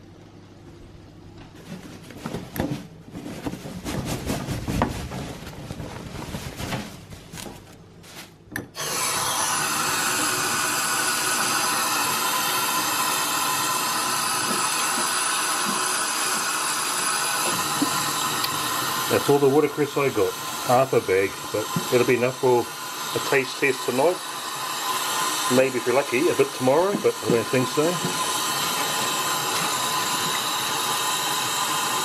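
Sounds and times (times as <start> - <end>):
rubbing and knocking handling: 1.5 - 8.5.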